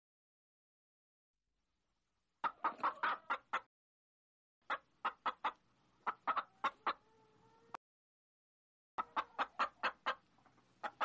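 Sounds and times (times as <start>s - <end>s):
hens clucking: 2.4s - 3.7s, 4.6s - 7.8s, 9.0s - 11.0s.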